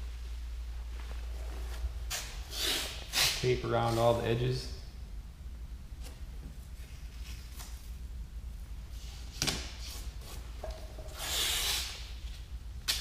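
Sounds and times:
tape rubbing and scuffing: 1.0 - 4.2, 6.0 - 8.0, 9.0 - 13.0.

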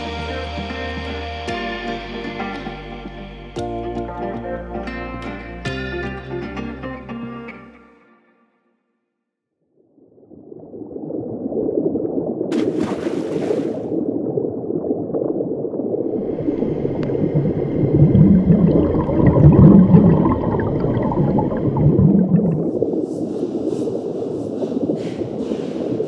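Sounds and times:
deep underwater rumble: 9.8 - 13.0, 13.7 - 26.0
water gurgling: 10.1 - 26.0.

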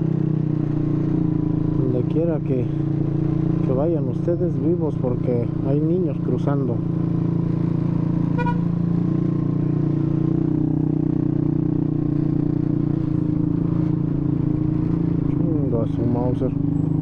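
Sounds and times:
scooter engine running: 6.8 - 17.0.

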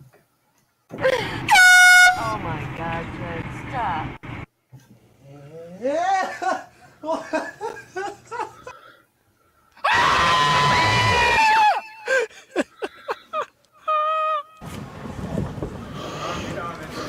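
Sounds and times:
girl screaming: 9.8 - 12.0.

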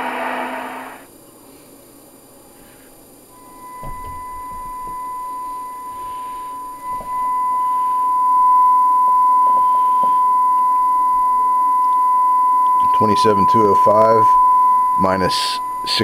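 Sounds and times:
high test tone from radio speaker: 3.3 - 16.0.

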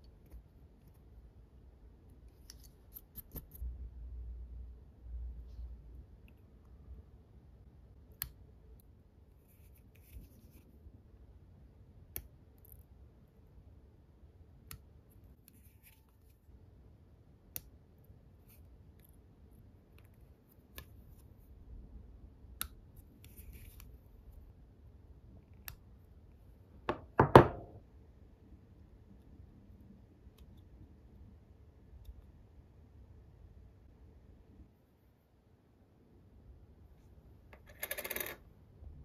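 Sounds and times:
knock and clatter: 26.9 - 27.8.

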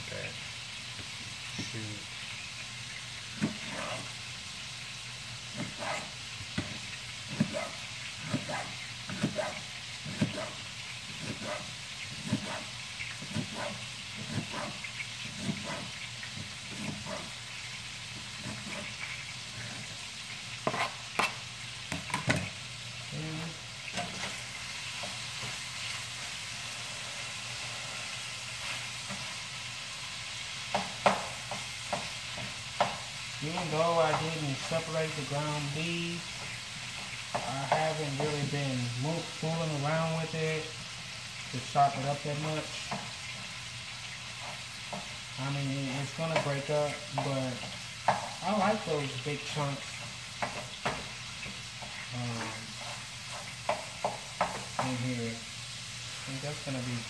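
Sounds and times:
meat sizzling in a pan: 0.0 - 57.0
knife chopping on plastic board: 3.4 - 4.0, 5.5 - 17.3, 20.6 - 22.4.

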